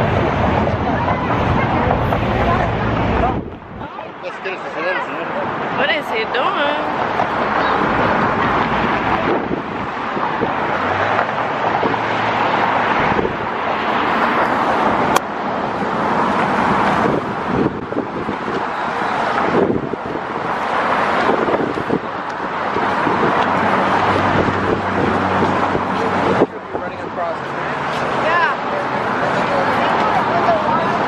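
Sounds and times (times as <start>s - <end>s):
wind on microphone: 0.0s - 3.9s, 6.6s - 27.2s
cars passing close by: 0.0s - 31.0s.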